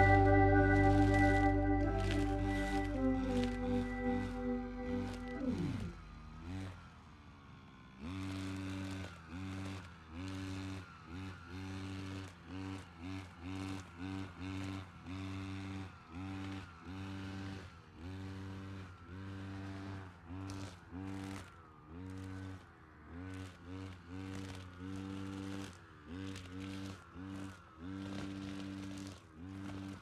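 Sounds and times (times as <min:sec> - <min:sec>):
brush cutter engine revving: 0:00.0 - 0:06.8, 0:08.0 - 0:30.0.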